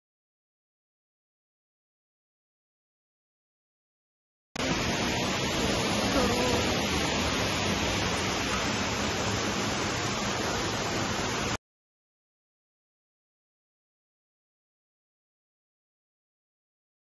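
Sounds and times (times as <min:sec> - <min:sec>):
stream rushing over boulders: 0:04.6 - 0:11.6.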